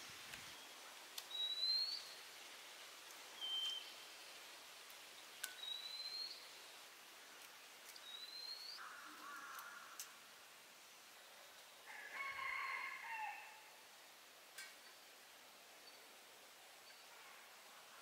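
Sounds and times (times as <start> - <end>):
faint background hiss: 0.0 - 18.0
bird whistled call: 1.3 - 2.1, 3.4 - 3.9.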